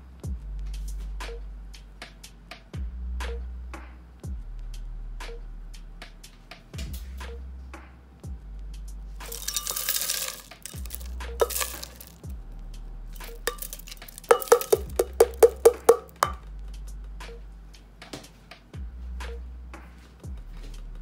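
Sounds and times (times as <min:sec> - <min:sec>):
ice cubes clinking in glass jar: 0:09.2 - 0:12.2, 0:13.2 - 0:16.4.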